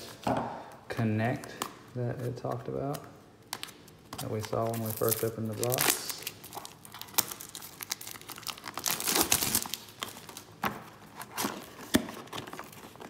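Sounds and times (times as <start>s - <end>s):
cardboard packaging rustling: 2.0s - 13.0s.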